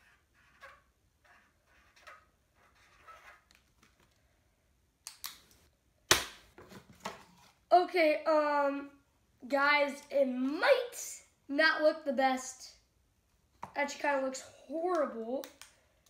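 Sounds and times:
marker squeaking on paper: 0.0 - 3.6.

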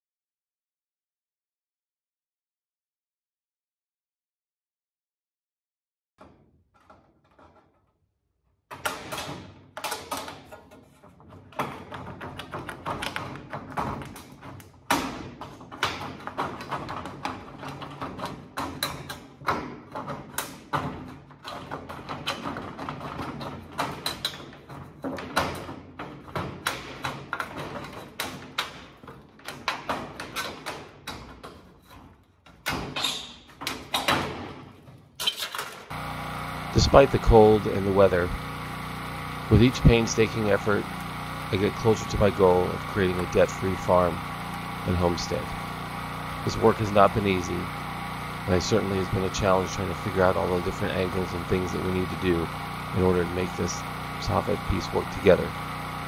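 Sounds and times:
metal taps and clatter: 8.7 - 32.8.

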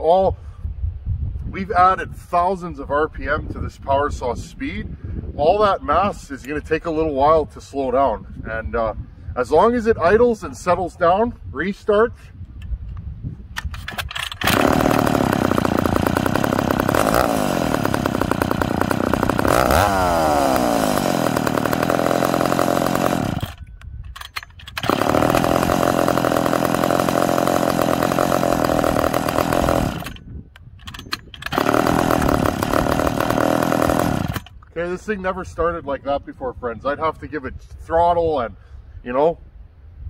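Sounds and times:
chainsaw starting and idling: 13.9 - 30.3, 30.9 - 34.7.

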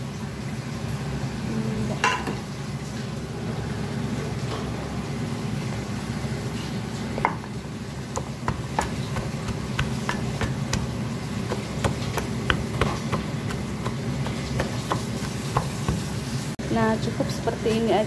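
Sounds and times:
steady low hum: 7.6 - 18.0
pestle knocking in wooden mortar: 8.1 - 16.4.

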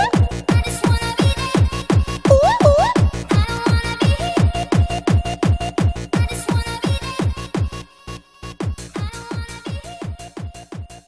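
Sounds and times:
pounding kick drum: 1.6 - 3.8.

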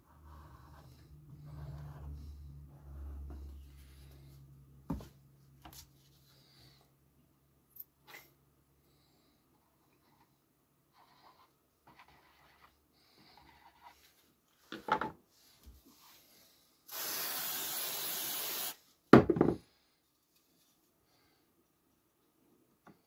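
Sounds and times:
aerosol spray hissing: 16.9 - 18.8.

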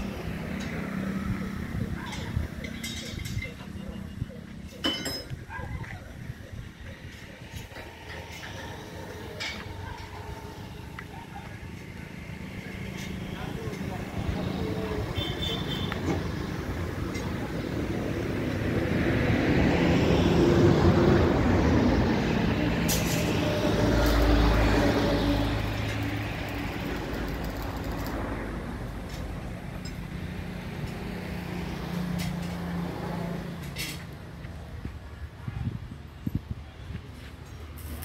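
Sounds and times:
engine running: 7.4 - 34.6.

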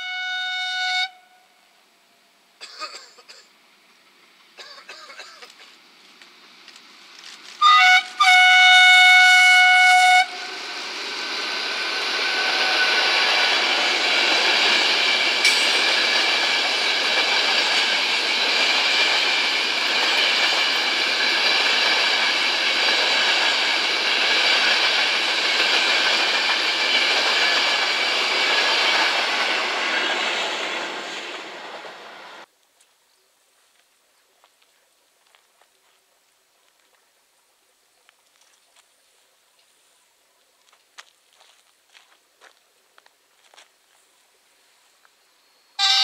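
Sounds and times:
locomotive horn blast: 0.0 - 1.5, 7.6 - 10.8, 45.8 - 46.0
train passing on rails: 2.6 - 32.5, 44.5 - 46.0.

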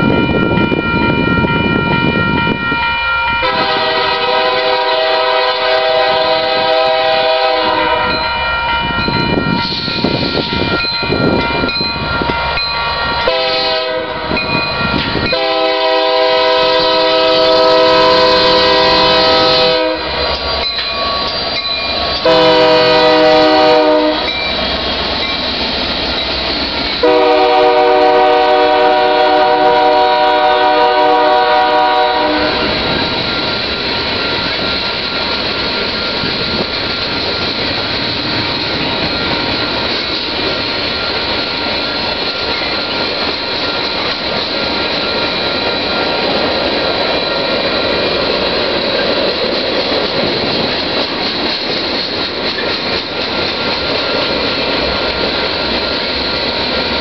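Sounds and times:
freight cars on rails: 0.0 - 57.0
train rumbling past: 0.0 - 57.0
locomotive air horn blasts: 3.4 - 8.2, 13.2 - 14.4, 15.2 - 20.2, 22.2 - 24.4, 27.0 - 32.8.

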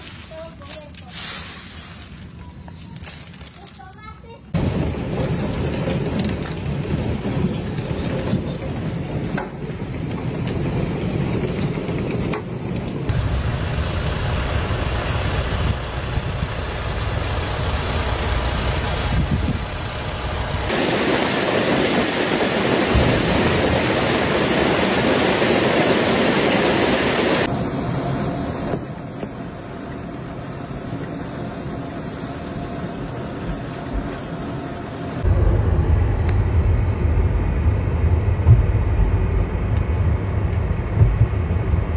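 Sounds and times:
heavy hail pelting: 4.6 - 8.0, 20.7 - 27.5.

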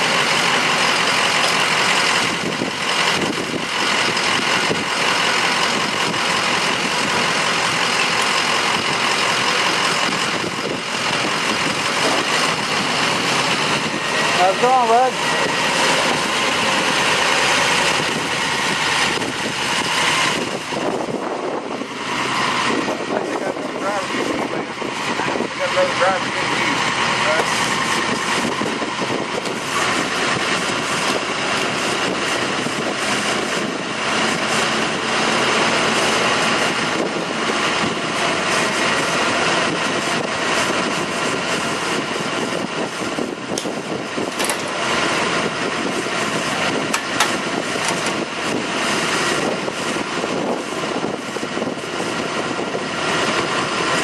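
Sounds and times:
bus engine idling: 0.0 - 54.0
wheelchair lift lowering: 43.5 - 44.9.

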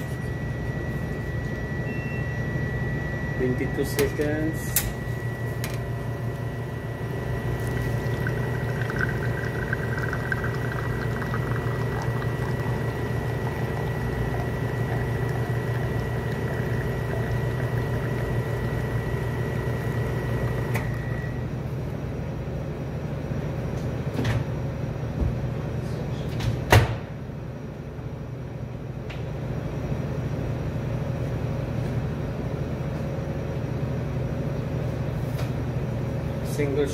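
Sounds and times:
espresso machine running: 3.4 - 21.6.

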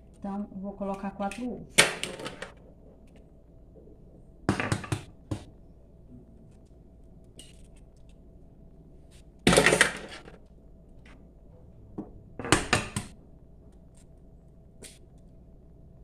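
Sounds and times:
egg knocking against cup rim: 4.5 - 5.5.

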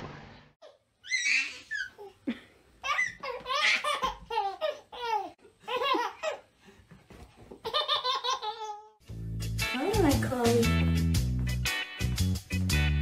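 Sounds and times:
toddler laughing: 0.6 - 6.5, 7.5 - 9.0.

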